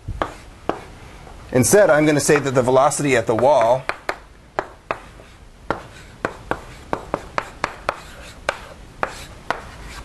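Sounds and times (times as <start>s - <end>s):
chalk tapping on blackboard: 0.2s - 0.9s, 3.3s - 10.0s.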